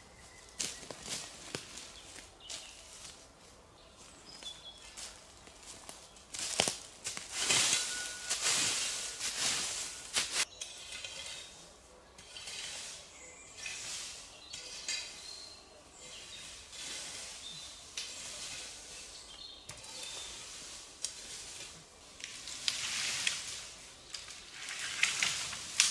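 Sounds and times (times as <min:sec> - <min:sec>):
small birds chirping: 0:00.0 - 0:06.6, 0:10.4 - 0:21.3
dry leaves being scraped: 0:05.0 - 0:25.9.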